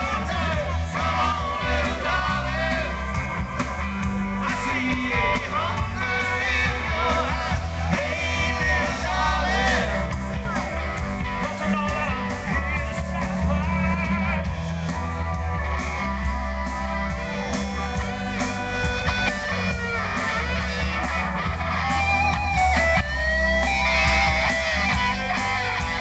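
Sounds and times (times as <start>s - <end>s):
person singing: 0.0s - 3.4s, 4.3s - 14.5s
guitar: 0.0s - 26.0s
steady bass line: 0.0s - 26.0s.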